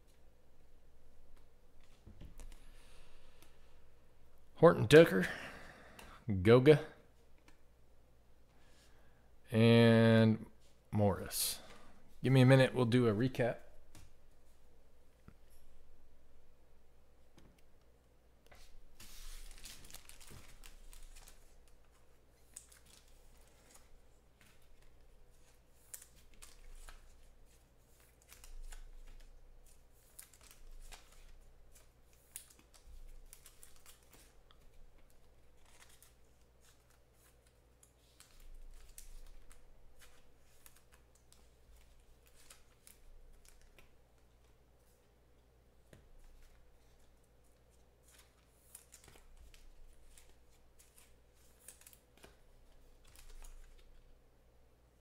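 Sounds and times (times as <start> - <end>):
trading cards being handled: 18.5 - 45.1, 45.8 - 54.1.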